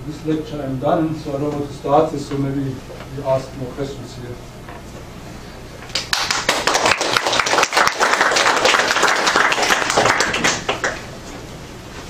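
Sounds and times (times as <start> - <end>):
audience applauding: 5.9 - 11.1.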